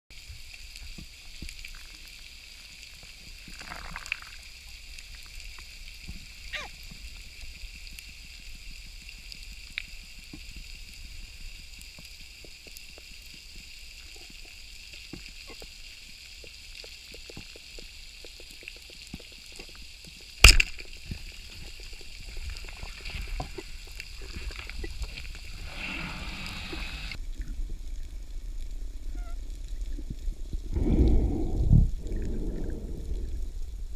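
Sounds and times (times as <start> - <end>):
low rumble of water: 0.1 - 33.9
underwater clicks: 14.9 - 25.5
speargun firing: 20.4 - 20.8.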